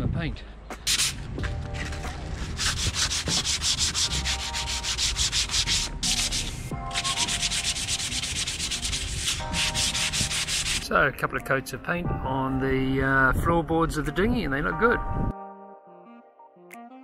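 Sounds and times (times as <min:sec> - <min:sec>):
sandpaper rubbing on wood: 0:00.8 - 0:01.2, 0:01.9 - 0:10.9.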